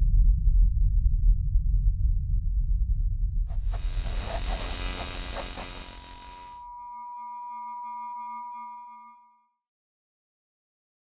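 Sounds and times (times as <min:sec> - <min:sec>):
bright hiss: 0:03.6 - 0:06.6
bell-like ringing tone: 0:04.0 - 0:09.5.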